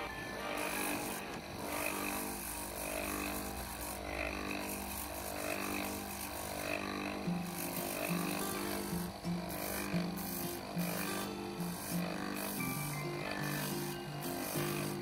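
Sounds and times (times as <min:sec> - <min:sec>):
background music: 0:00.0 - 0:02.4, 0:06.6 - 0:15.0
grinding machine running: 0:00.0 - 0:15.0
stone sanding on spinning wheel: 0:00.0 - 0:15.0.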